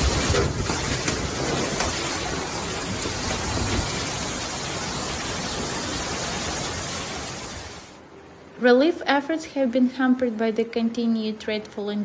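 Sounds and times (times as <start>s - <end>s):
floodwater rushing: 0.0s - 8.0s.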